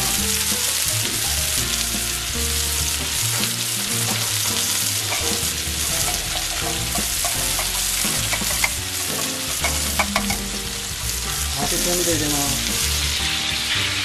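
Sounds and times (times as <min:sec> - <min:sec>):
chicken sizzling in oil: 0:00.0 - 0:14.0
fat popping: 0:03.4 - 0:11.4.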